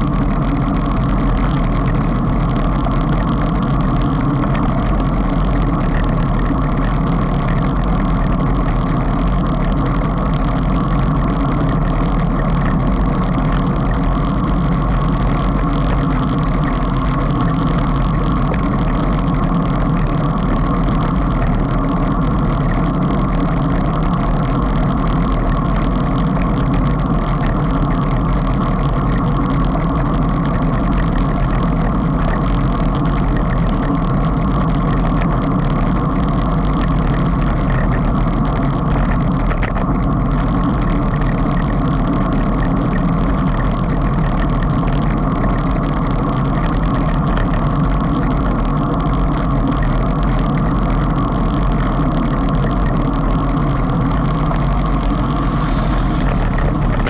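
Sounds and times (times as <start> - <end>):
wind on microphone: 51.2 - 57.0
road noise: 54.4 - 57.0.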